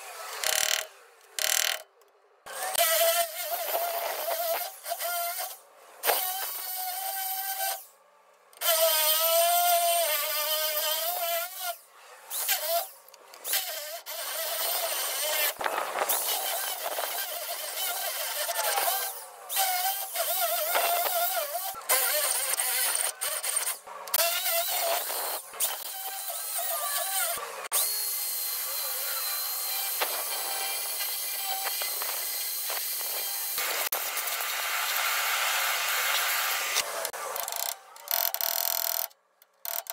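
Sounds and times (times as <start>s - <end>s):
high wavering drill whine: 24.4s - 39.1s.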